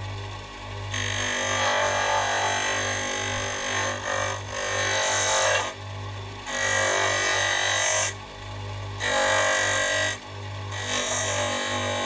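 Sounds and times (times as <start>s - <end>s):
bench grinder humming and whining: 0.0s - 12.0s
metal grinding on grinder wheel: 0.9s - 5.8s.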